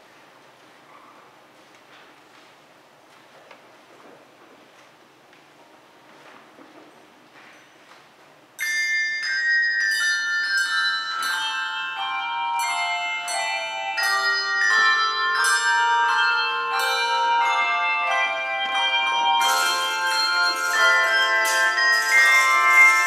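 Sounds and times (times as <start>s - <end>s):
handbells ringing: 8.6s - 23.0s.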